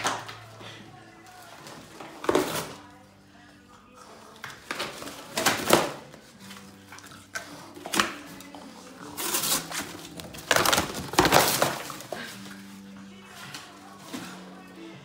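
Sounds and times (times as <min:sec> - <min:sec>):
dog tearing cardboard box: 0:01.6 - 0:02.8, 0:09.1 - 0:12.1.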